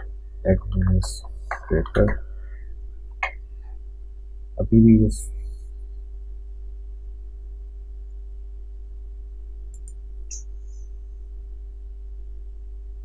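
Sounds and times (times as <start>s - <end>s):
low electrical hum: 0.0s - 13.0s
faint clicks: 9.7s - 10.8s.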